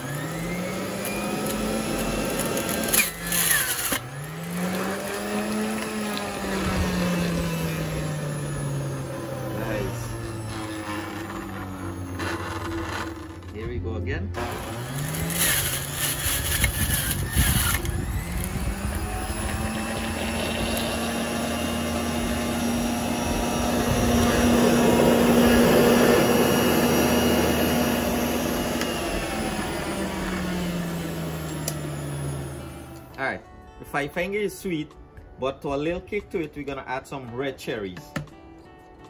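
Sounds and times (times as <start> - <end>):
fruit being shredded: 0.0 - 13.6, 14.4 - 32.9
juicer motor whining: 0.0 - 33.3.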